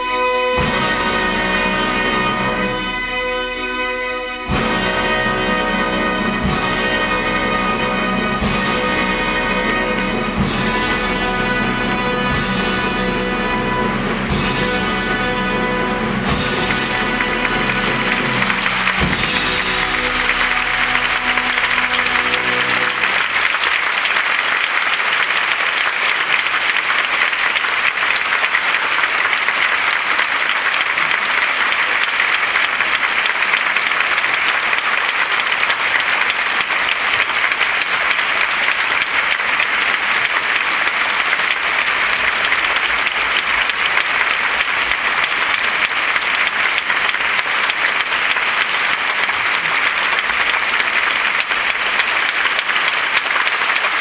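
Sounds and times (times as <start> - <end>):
audience applauding: 4.7 - 54.0.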